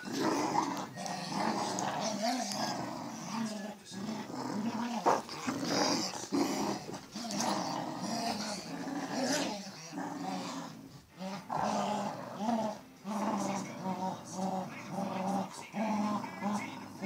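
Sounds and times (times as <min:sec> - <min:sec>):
dogs play-growling: 0:00.0 - 0:17.0.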